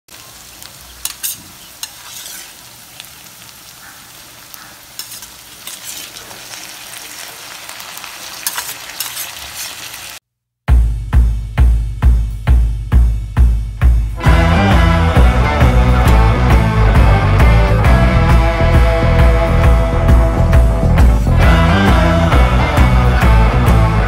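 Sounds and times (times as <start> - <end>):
vegetables sizzling in hot oil: 0.1 - 10.2
metal utensil scraping pan: 0.9 - 2.8, 4.9 - 6.7, 8.3 - 10.0
loud drum beat: 10.7 - 24.0.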